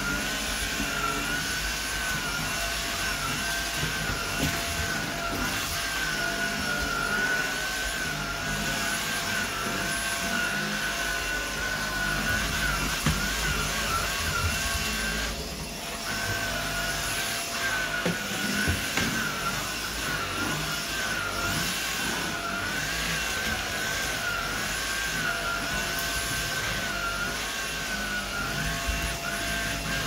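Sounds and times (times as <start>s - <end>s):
vacuum cleaner running: 0.0s - 30.0s.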